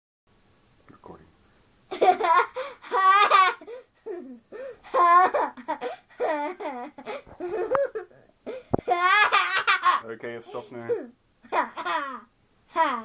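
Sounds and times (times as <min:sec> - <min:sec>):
girl laughing: 0:01.9 - 0:10.0.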